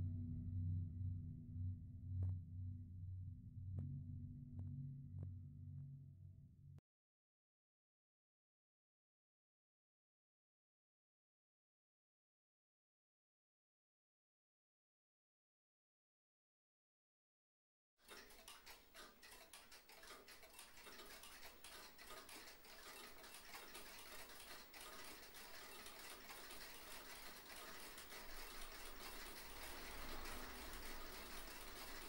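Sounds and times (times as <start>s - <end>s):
crackling hiss with clicks: 18.1s - 32.0s.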